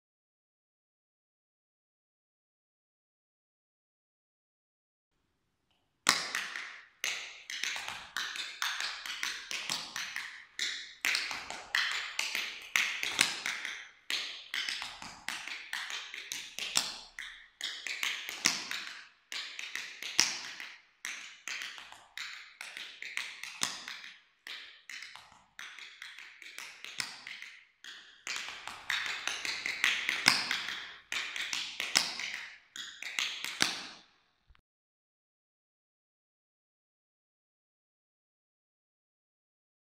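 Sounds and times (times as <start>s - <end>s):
tap shoes on wooden floor: 6.1s - 24.1s, 24.8s - 34.0s.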